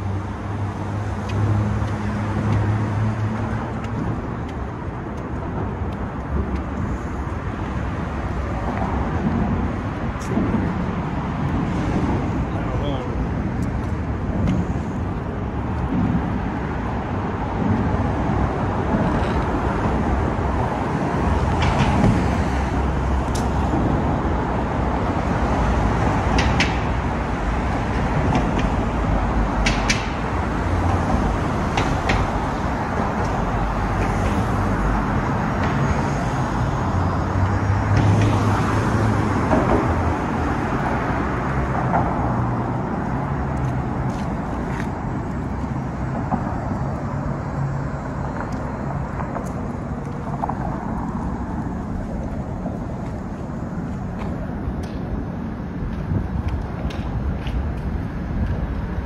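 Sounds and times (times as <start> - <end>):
passing cars and buses: 0.0 - 59.0.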